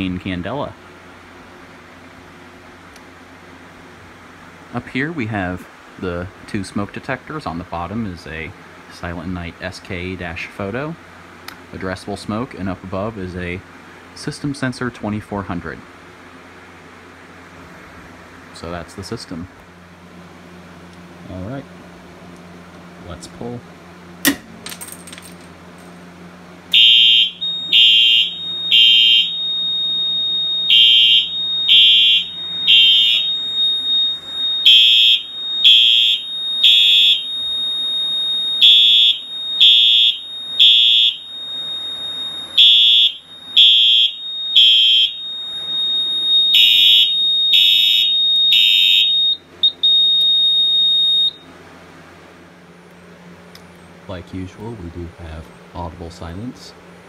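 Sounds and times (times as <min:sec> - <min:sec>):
electronic horn blasts: 0:26.7 - 0:51.4
steady high tone: 0:26.7 - 0:51.5.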